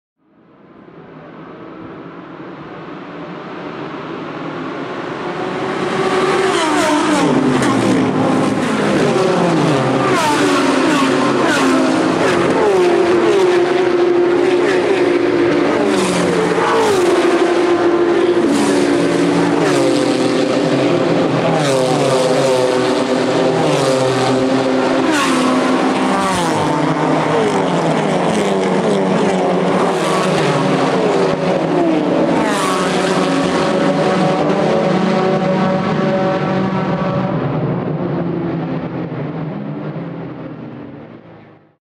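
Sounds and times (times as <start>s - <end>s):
race cars accelerating past: 2.5s - 41.5s.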